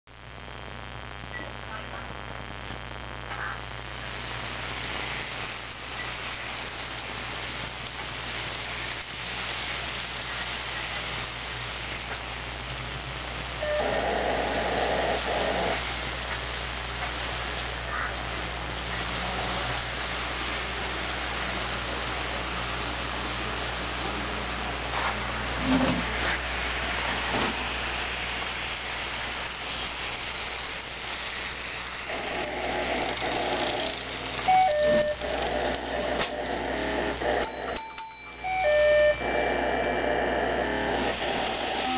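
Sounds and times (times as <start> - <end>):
low steady hum: 0.1 - 37.8
model train whirring on rails: 4.0 - 41.9
model train wheels rattling: 29.6 - 37.6.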